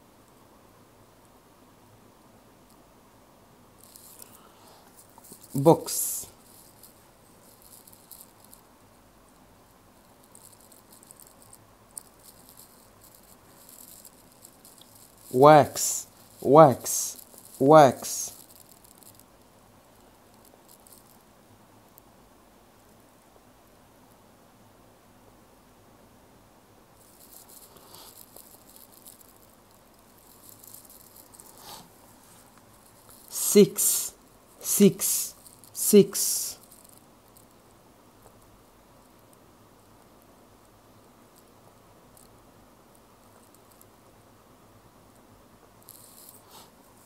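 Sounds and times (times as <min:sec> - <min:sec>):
stylus scratching on glass screen: 0:03.8 - 0:04.3, 0:04.9 - 0:08.7, 0:10.1 - 0:19.3, 0:27.0 - 0:37.1, 0:45.8 - 0:47.0.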